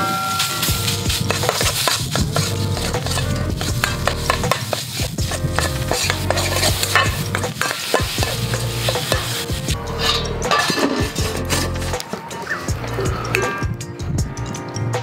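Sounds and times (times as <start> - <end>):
metal ladle scraping a pan: 0.0 - 13.6
meat sizzling in a wok: 0.5 - 10.2.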